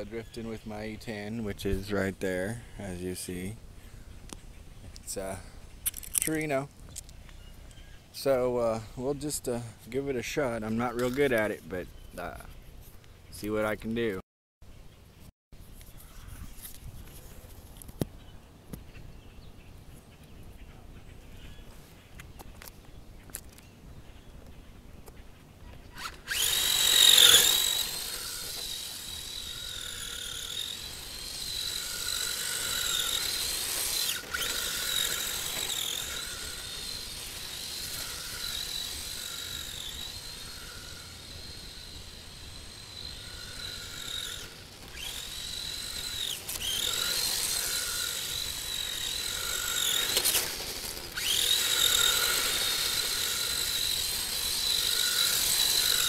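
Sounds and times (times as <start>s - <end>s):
toy car motor whining: 25.9s - 56.0s.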